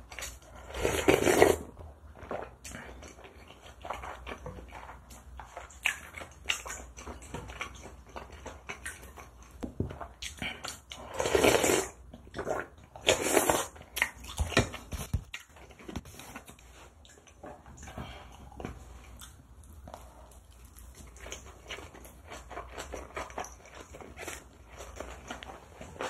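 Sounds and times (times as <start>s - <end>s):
person slurping soup: 0.4s - 1.8s, 10.6s - 13.8s
chewing with mouth clicks: 2.2s - 26.0s.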